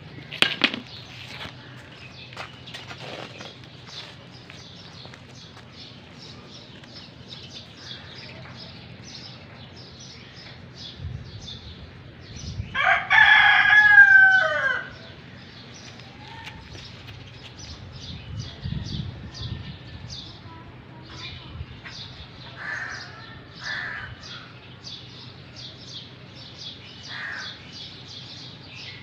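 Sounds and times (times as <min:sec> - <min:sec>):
small birds chirping: 0:00.1 - 0:12.7, 0:14.9 - 0:29.0
rooster crowing: 0:12.8 - 0:15.1.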